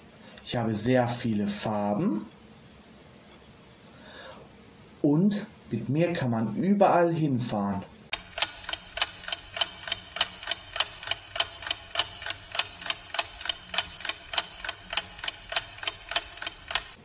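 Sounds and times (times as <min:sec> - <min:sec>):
quick clock ticking: 0:08.1 - 0:17.0.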